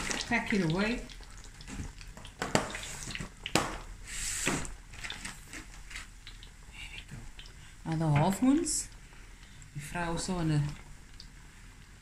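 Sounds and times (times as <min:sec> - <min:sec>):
oil bubbling and crackling: 0:00.0 - 0:12.0
sharp pops of frying oil: 0:01.7 - 0:03.9.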